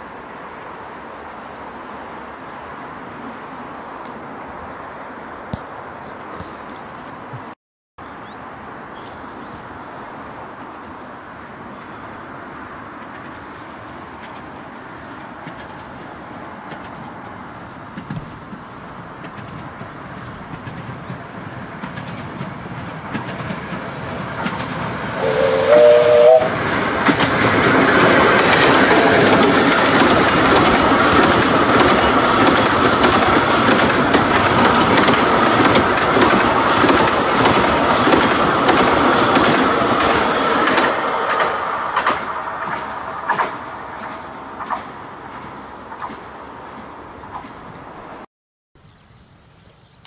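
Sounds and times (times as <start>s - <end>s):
steam exhaust: 23.9s - 30.7s
steam locomotive whistle: 24.3s - 26.7s, 28.8s - 29.6s
wheels clattering over rail joints: 26.6s - 47.7s.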